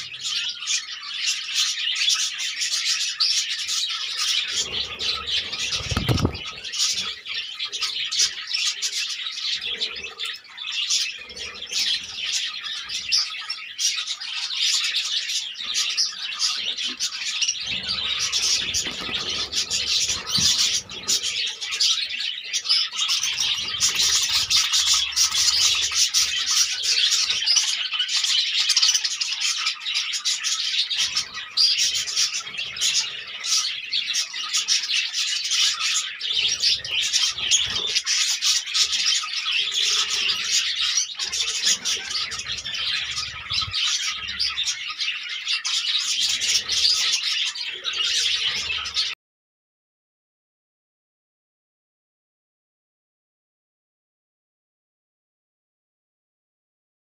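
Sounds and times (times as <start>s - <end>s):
budgerigars chattering and chirping: 0.0s - 49.2s.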